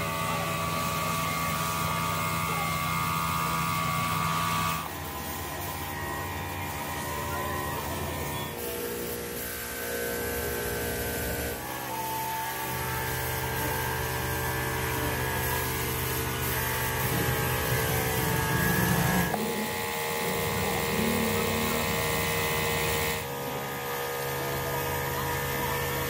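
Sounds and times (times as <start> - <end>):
machinery droning: 14.6 - 26.0.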